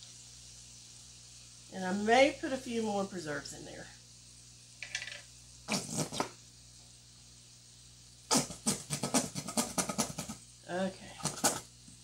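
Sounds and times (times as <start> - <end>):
squeeze bottle sputtering: 5.7 - 6.4, 8.3 - 10.4, 11.1 - 11.7.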